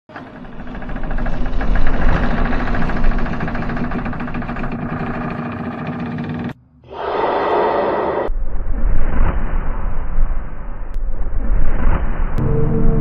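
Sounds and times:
loud steady rumble: 0.1s - 6.6s.

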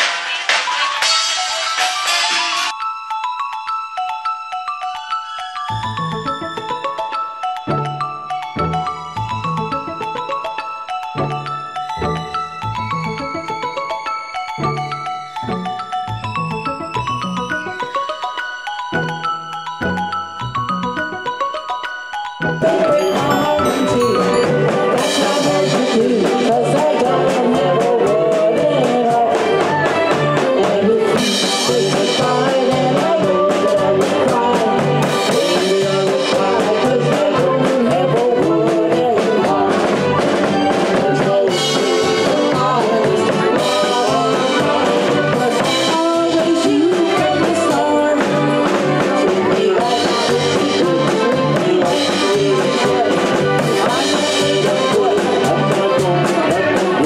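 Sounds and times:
trombone: 0.0s - 2.7s
accordion: 0.0s - 2.8s, 5.7s - 21.6s, 22.4s - 57.0s
drum kit beat: 0.0s - 2.8s, 22.6s - 57.0s.

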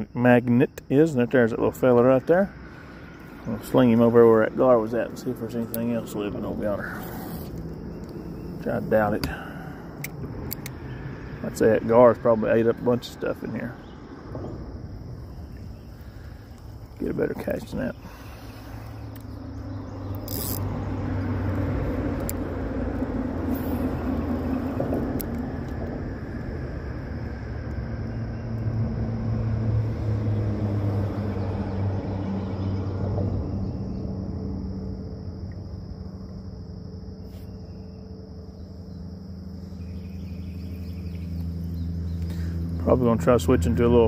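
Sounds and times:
crickets chirring: 0.0s - 44.0s
low engine drone: 0.0s - 44.0s
low rumble: 2.2s - 36.6s.

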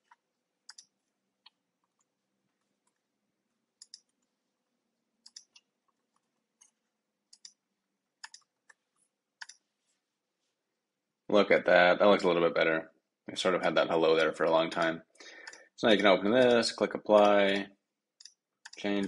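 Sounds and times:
keyboard keystrokes and clicks: 0.0s - 0.9s, 3.8s - 4.3s, 5.2s - 7.6s, 8.2s - 8.8s.

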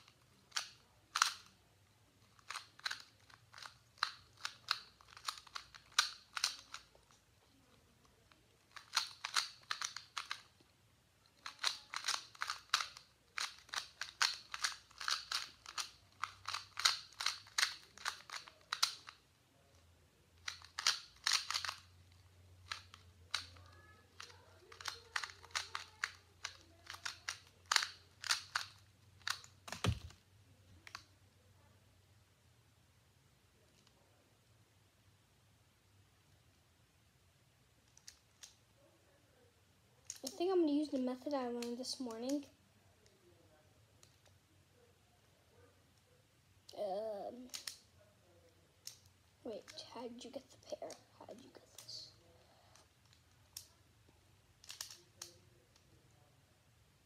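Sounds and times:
puzzle cube clicking: 0.0s - 1.6s, 2.2s - 19.2s, 20.4s - 30.2s, 37.8s - 38.6s, 40.0s - 43.2s, 47.4s - 47.9s, 48.8s - 49.9s, 54.6s - 55.9s.

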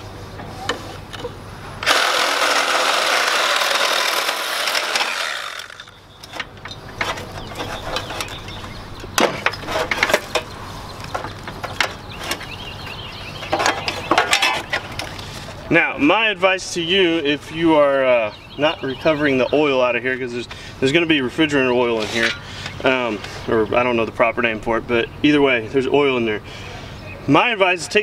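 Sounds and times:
reciprocating saw cutting pipe: 1.8s - 6.0s.

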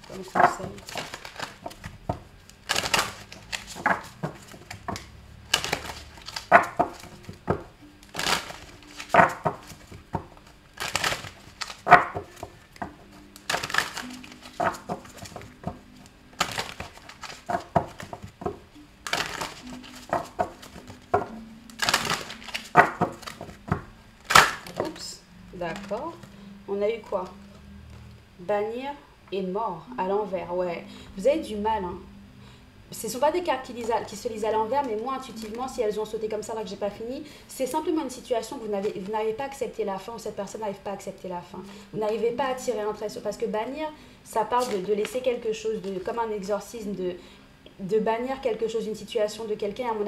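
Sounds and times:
cards being shuffled: 0.0s - 25.0s, 44.6s - 46.0s.

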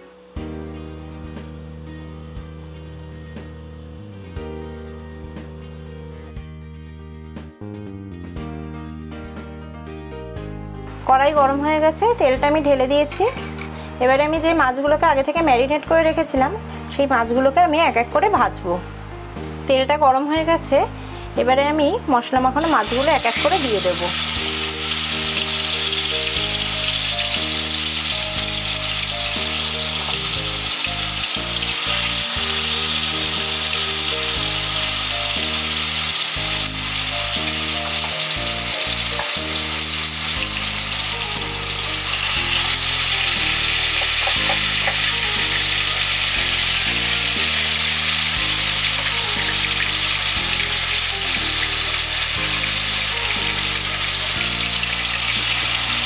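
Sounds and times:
background music: 0.0s - 56.0s
fish frying in hot oil: 22.6s - 56.0s.

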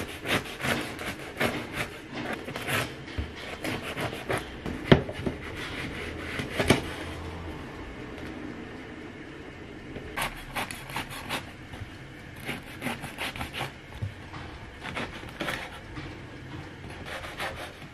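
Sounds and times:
knife sawing through bread crust: 0.0s - 4.5s, 5.1s - 7.2s, 10.2s - 11.6s, 12.4s - 13.8s, 14.8s - 15.9s, 16.9s - 17.9s.

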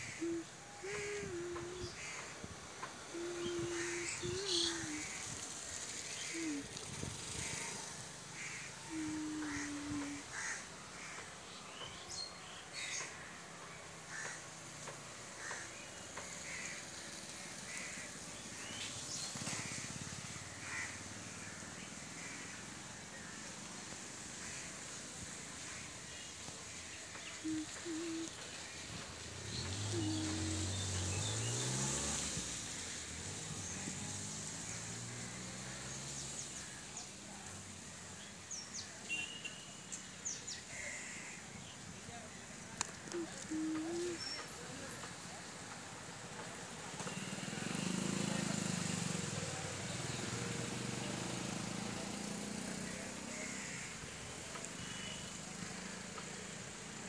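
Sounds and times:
small birds chirping: 0.0s - 13.1s, 23.5s - 34.9s, 41.7s - 45.5s
steady hiss: 0.0s - 57.0s
crows cawing: 9.4s - 11.3s, 14.1s - 14.4s, 15.4s - 15.7s, 16.4s - 16.8s, 17.7s - 18.1s, 20.6s - 21.6s, 22.2s - 22.6s, 24.4s - 24.7s, 53.4s - 54.0s.

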